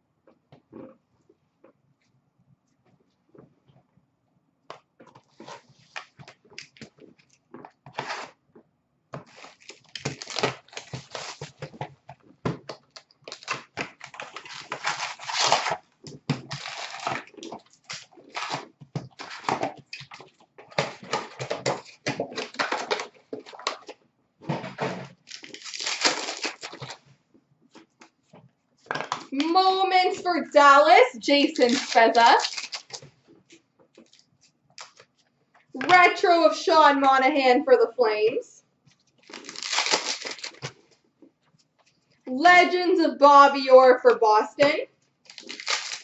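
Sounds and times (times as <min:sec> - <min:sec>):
packaging being torn open: 0:09.3 - 0:11.7, 0:12.7 - 0:15.8, 0:16.4 - 0:20.2, 0:25.1 - 0:27.0, 0:31.5 - 0:33.0, 0:39.2 - 0:40.7, 0:45.3 - 0:46.0.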